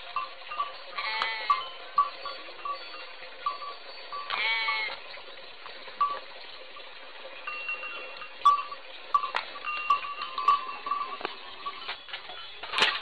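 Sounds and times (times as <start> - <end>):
goat bleating: 4.3 - 5.0.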